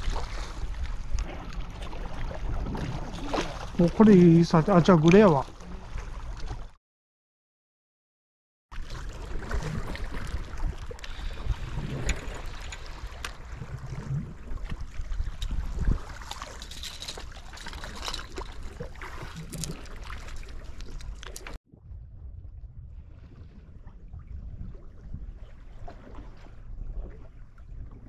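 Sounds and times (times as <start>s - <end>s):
water lapping against concrete: 0.0s - 6.8s, 8.8s - 21.6s.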